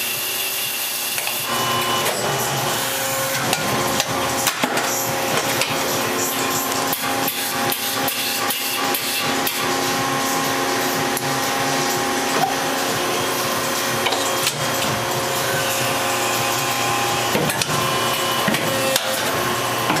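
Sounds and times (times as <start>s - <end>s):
machine humming: 0.0s - 20.0s
sharp clicks and knocks: 12.4s - 15.0s.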